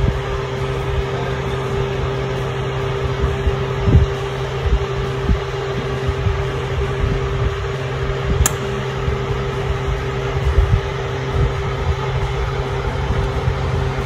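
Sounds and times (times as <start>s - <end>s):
mechanical hum with tone: 0.0s - 14.0s
sharp click: 8.4s - 8.8s.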